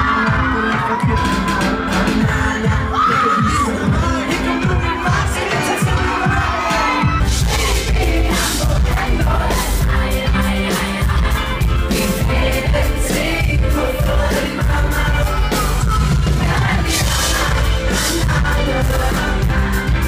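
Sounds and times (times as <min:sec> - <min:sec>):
live pop music over loudspeakers: 0:00.0 - 0:20.0
person singing: 0:00.0 - 0:20.0.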